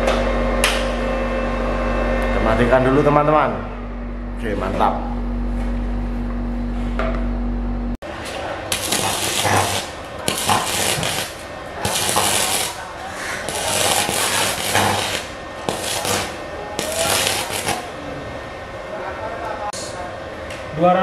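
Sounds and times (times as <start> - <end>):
welding arc crackling: 8.1 - 18.0.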